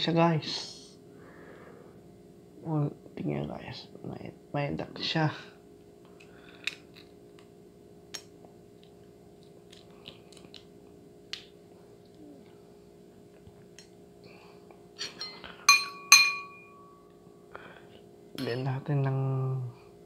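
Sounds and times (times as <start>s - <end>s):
tableware clinking: 15.0s - 17.1s.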